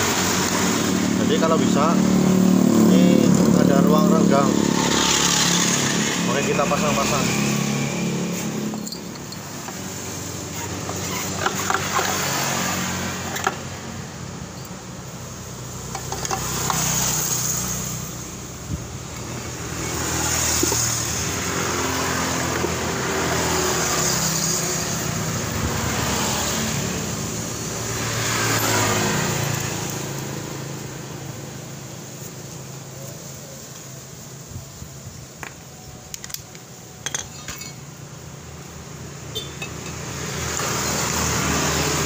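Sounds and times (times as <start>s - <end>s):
vehicle engines running: 0.0s - 33.4s.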